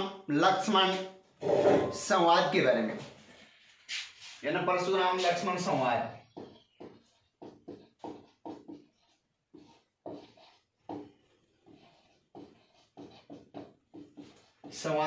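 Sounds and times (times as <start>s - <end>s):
marker pen writing on whiteboard: 5.4s - 15.0s.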